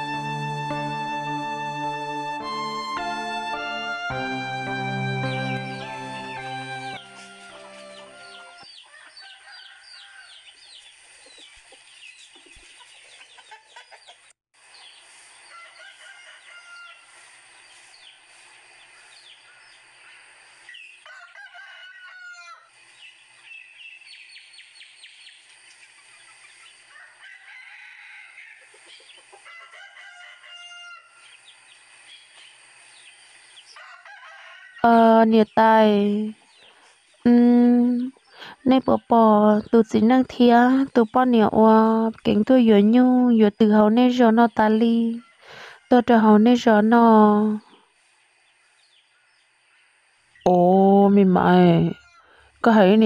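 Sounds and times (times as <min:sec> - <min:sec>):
roosters crowing: 0:05.8 - 0:10.5, 0:15.5 - 0:17.2, 0:21.0 - 0:22.7, 0:26.9 - 0:28.8, 0:29.4 - 0:31.3, 0:33.8 - 0:34.9
bird chirps: 0:07.0 - 0:09.3
chickens clucking: 0:11.2 - 0:14.3.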